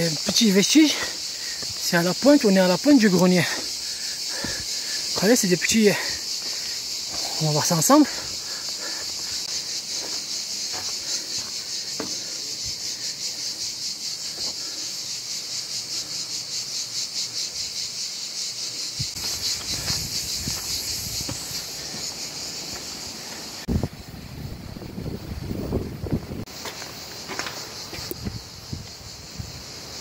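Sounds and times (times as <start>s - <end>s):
cicadas buzzing: 0.0s - 30.0s
footsteps on path: 1.0s - 2.2s, 3.0s - 14.8s, 19.1s - 23.6s, 26.5s - 29.6s
wind rumble on microphone: 23.7s - 26.5s, 28.1s - 29.7s.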